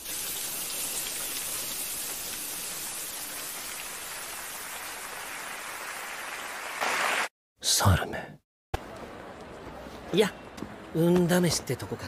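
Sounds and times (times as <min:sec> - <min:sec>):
falling water hissing: 0:00.0 - 0:07.3.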